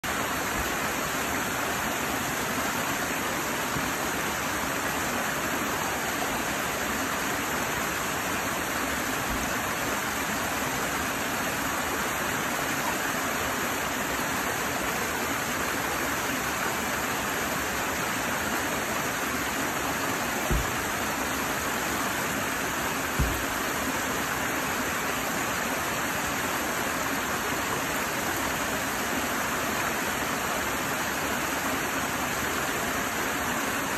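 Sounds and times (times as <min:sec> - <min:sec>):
stream splashing over boulders: 0:00.0 - 0:33.9
low thumps: 0:20.4 - 0:20.9, 0:23.2 - 0:23.5.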